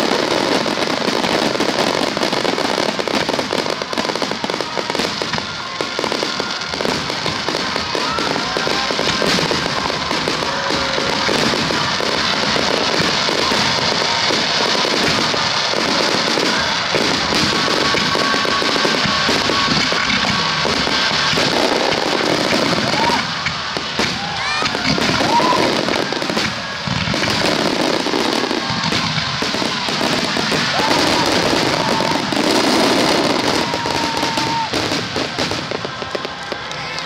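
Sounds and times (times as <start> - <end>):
firework crackling: 0.0 - 37.0.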